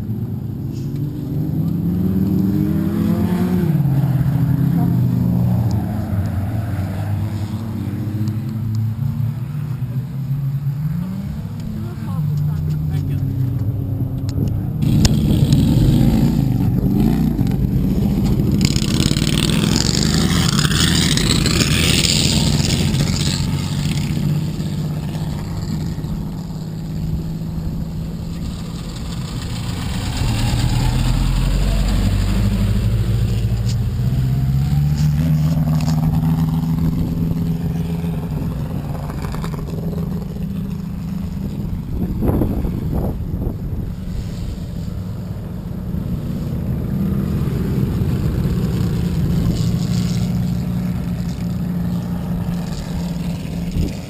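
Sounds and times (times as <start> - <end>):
race car engines revving: 0.0 - 54.0
deep rumble: 12.4 - 54.0.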